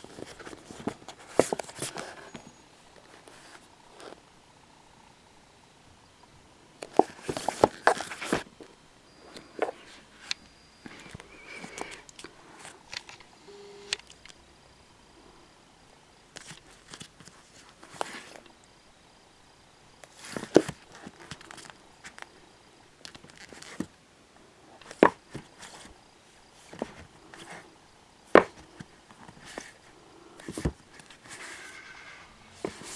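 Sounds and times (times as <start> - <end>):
books knocking on wooden shelf: 28.4 - 28.6.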